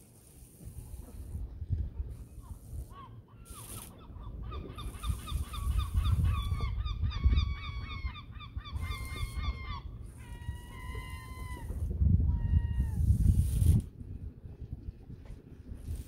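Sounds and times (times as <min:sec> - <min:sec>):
gull calling: 0:02.9 - 0:13.0.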